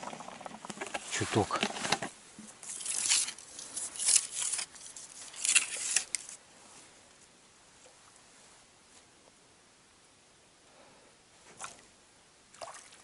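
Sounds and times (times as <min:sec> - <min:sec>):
clothing and grass rustling: 0:00.0 - 0:07.0.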